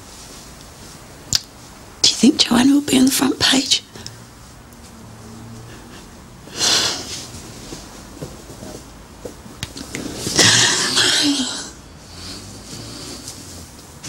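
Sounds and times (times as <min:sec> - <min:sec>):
woman whimpering: 0:10.4 - 0:11.8.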